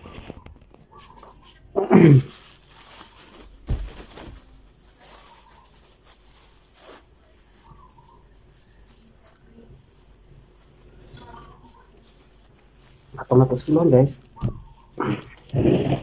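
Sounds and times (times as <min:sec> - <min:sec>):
plastic bag rustling: 0:00.0 - 0:15.5
soft thump: 0:03.6 - 0:04.0.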